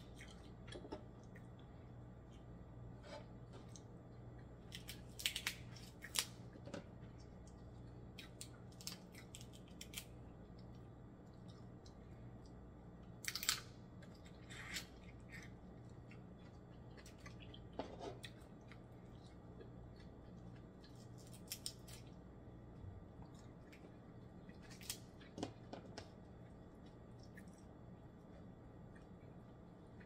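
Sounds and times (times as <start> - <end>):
faint low hum: 0.0 - 30.0
crab shell cracking: 4.6 - 6.4, 8.2 - 10.1, 13.2 - 13.8, 21.2 - 22.0.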